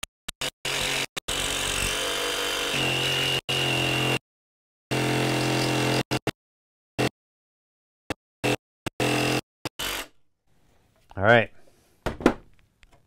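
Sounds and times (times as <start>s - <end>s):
jigsaw cutting wood: 0.4s - 4.2s, 4.9s - 6.4s, 8.4s - 10.1s.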